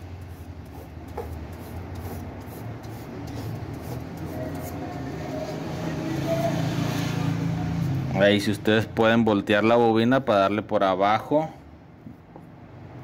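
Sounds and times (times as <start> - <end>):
sandpaper scraping wire: 0.0 - 5.0.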